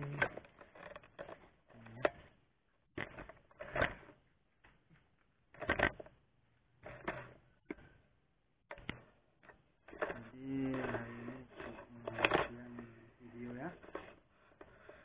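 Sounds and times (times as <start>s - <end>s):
camera handling knocks and clatters: 0.2s - 6.2s.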